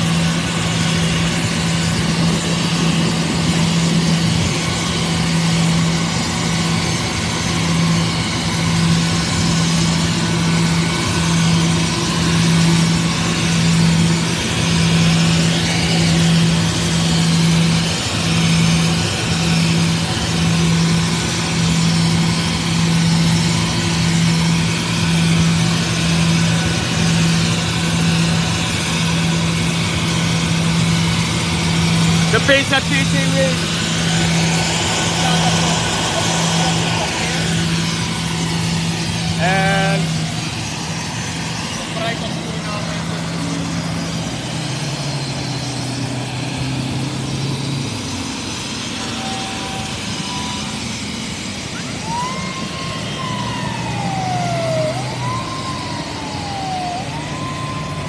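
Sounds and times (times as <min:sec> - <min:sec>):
jet engines idling: 0:00.0 - 0:58.0.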